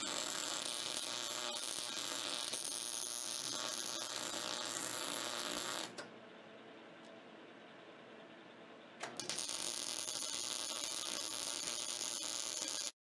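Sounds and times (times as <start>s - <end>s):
welder arc crackling: 0.0s - 6.0s, 9.0s - 13.0s.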